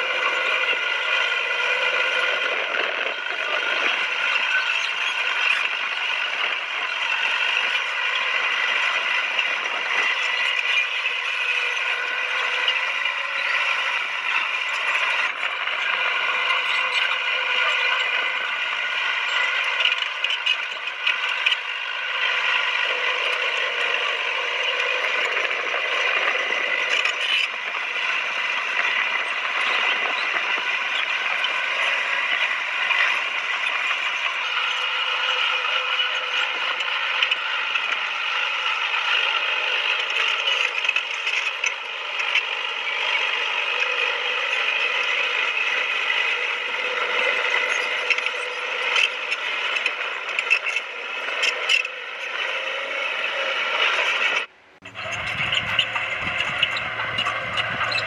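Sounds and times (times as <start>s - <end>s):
diesel engine running: 54.5s - 58.0s.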